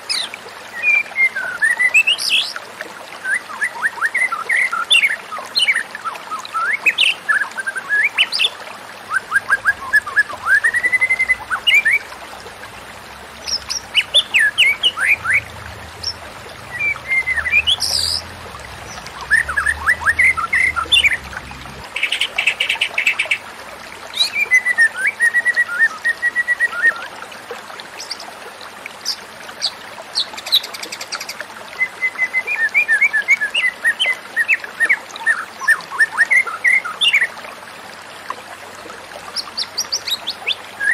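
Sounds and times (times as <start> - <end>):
songbird whistling phrases: 9.1 - 12.0, 16.7 - 18.2, 24.2 - 27.1.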